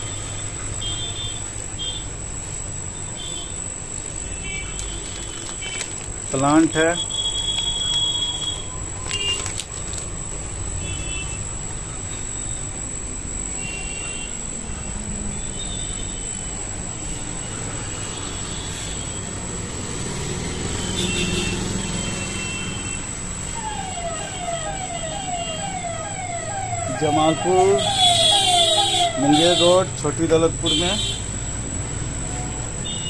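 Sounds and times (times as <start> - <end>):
street traffic rumble: 0.0 - 33.0
siren sweeping up in pitch: 23.4 - 29.9.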